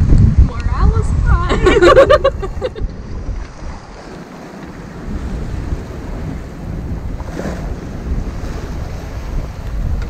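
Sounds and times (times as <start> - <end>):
sea waves rushing: 0.0 - 10.0
wind buffeting microphone: 0.0 - 10.0.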